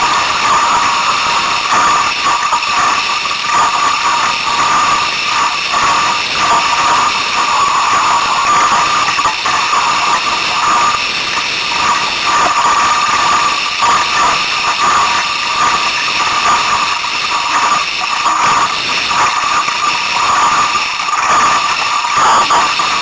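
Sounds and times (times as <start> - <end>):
water rushing along a hull: 0.0 - 23.0.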